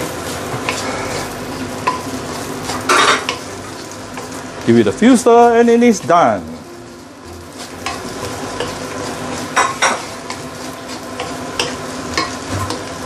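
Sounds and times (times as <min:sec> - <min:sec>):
fried rice sizzling in a pan: 0:00.0 - 0:13.0
spatula scraping a pan: 0:00.1 - 0:04.4, 0:07.5 - 0:13.0.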